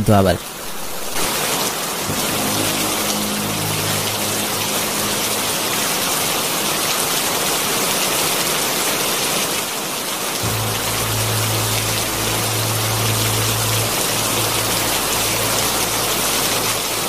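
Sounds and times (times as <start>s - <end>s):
steady rain falling: 0.4s - 17.0s
low droning tone: 2.0s - 7.9s, 10.4s - 17.0s.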